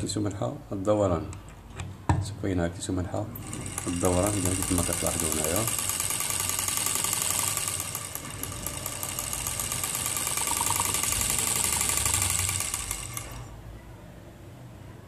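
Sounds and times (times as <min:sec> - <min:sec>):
motor brushes ticking: 0:03.4 - 0:13.6
small electric motor buzzing: 0:03.4 - 0:13.6.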